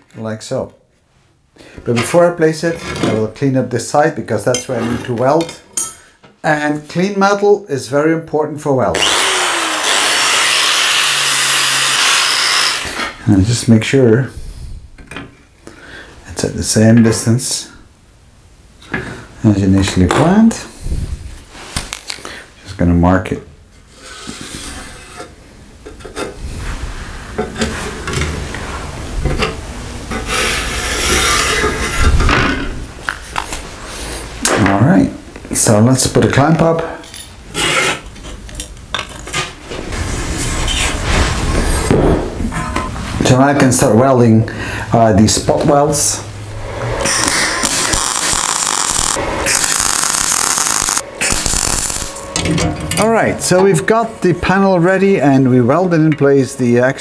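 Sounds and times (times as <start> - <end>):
welder arc crackling: 47.0 - 52.4.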